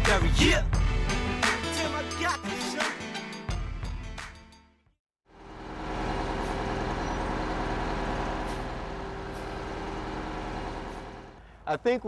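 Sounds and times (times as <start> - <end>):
music: 0.0 - 5.0
large vehicle engine running: 5.3 - 11.4.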